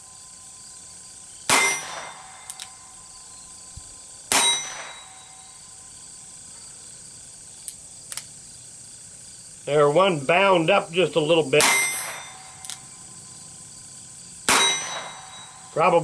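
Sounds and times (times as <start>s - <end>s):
revolver shots: 1.5s - 2.9s, 4.3s - 5.4s, 14.4s - 15.7s.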